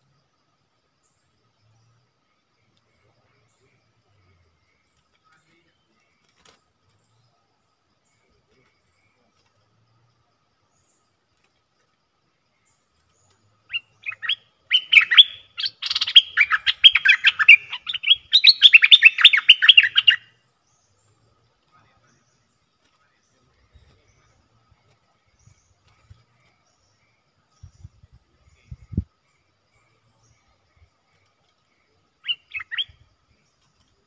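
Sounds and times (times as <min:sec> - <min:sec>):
bulbul chattering calls: 0:13.6 - 0:20.9, 0:31.8 - 0:33.1.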